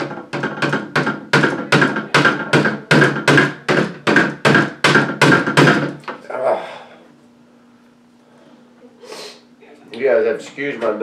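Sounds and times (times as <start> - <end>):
mallet tapping metal punch: 0.0 - 6.0.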